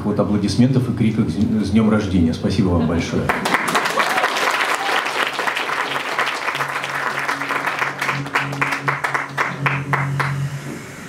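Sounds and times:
audience applause: 3.3 - 10.6
acoustic guitar playing low notes: 6.4 - 11.0.

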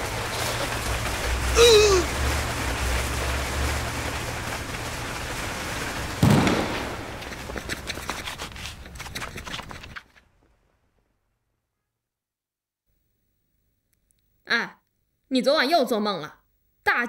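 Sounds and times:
low hum: 0.0 - 9.1
steady rushing noise: 0.0 - 9.6
sharp crackling pops: 0.0 - 10.6
heavy bang: 5.4 - 7.4.

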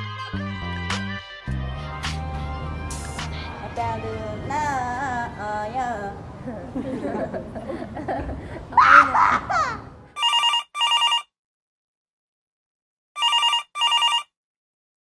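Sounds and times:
group talking and laughing: 6.4 - 8.8
telephone ringing: 10.2 - 11.3, 13.2 - 14.4.

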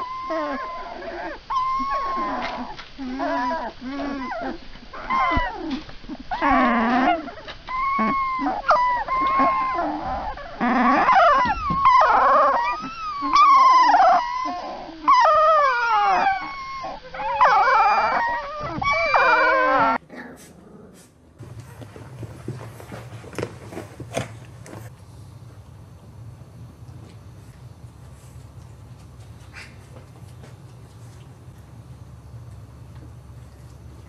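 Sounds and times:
puppies whining and crying: 0.0 - 20.0.

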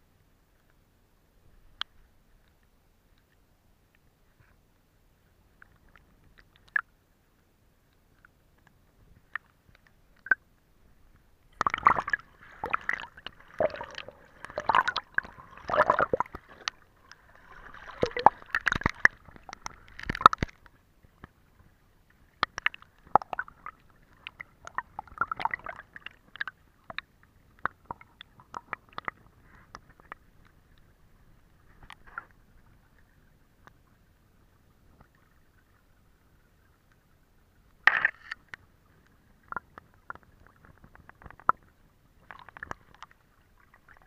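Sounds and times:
water gurgling underwater: 11.5 - 20.8, 22.4 - 30.2.

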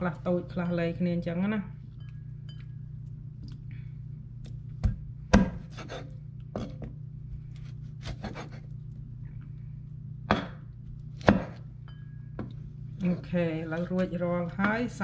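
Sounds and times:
steady low hum: 0.0 - 15.0
cleaver chopping on wooden board: 4.8 - 6.0, 11.2 - 11.6.

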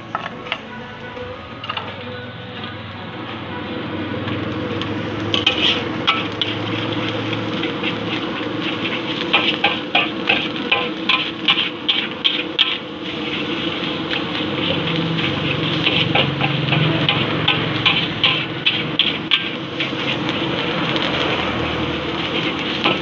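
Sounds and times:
frying sizzle: 0.0 - 23.0
metal spatula scraping a wok: 4.2 - 23.0.

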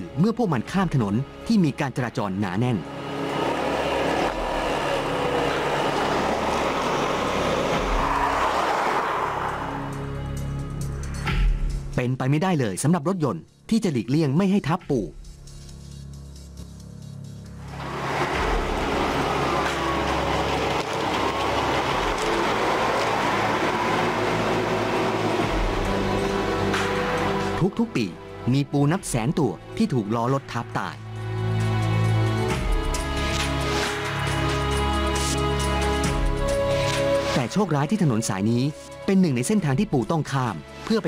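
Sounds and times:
car driving past: 2.8 - 10.6, 17.6 - 27.6.

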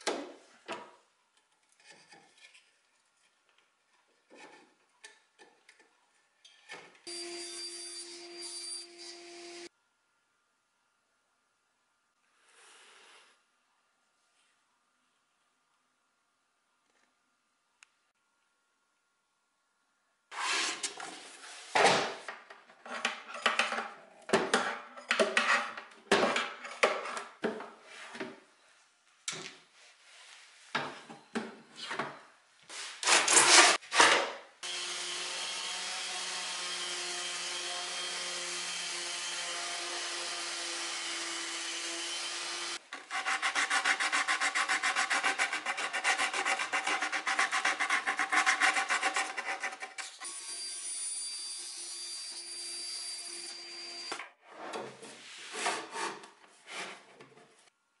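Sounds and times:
orbital sander on wood: 34.6 - 42.8
putty knife scraping wood: 42.9 - 50.1.

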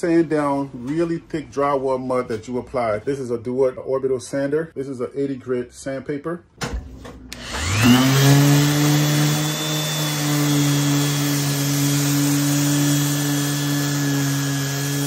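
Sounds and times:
orbit sander motor hum: 7.4 - 15.0.

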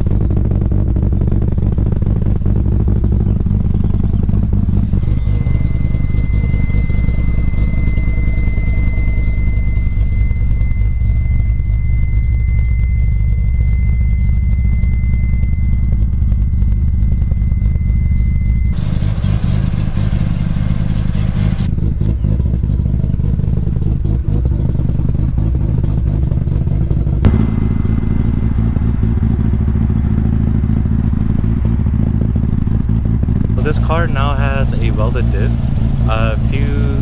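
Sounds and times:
rotary engine idling: 0.0 - 37.0
steady high tone: 4.7 - 21.6, 27.2 - 37.0.

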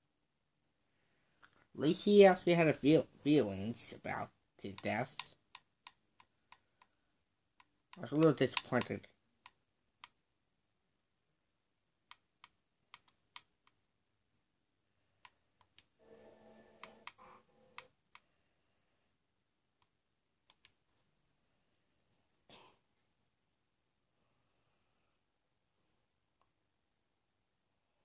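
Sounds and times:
faint pitched sound: 16.0 - 17.9
faint clicks: 19.8 - 20.8.

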